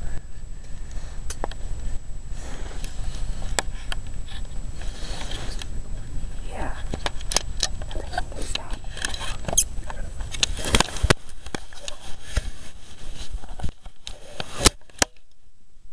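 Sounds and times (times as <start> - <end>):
close rustling and scraping: 0.1 - 15.2.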